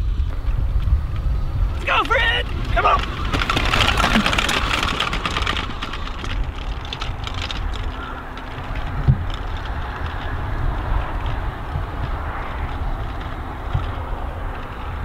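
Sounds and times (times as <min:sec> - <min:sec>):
bike tyres rolling on grass: 0:00.0 - 0:15.0
wind rumble on microphone: 0:00.0 - 0:15.0.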